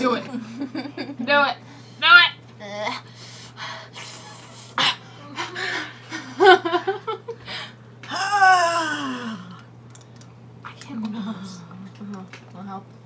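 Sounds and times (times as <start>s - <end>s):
women laughing: 0.3s - 1.4s, 5.2s - 7.5s
women breathing hard: 7.4s - 7.8s
women whimpering: 8.1s - 9.6s
woman moaning: 8.1s - 9.7s.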